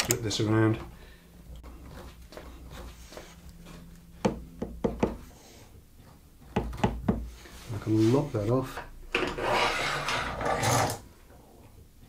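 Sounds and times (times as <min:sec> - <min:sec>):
board knocking against board: 0:04.2 - 0:05.2, 0:06.5 - 0:07.3.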